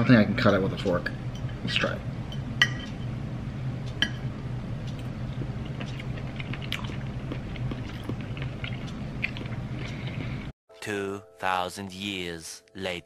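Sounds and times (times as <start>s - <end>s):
steady low hum: 0.0s - 10.5s.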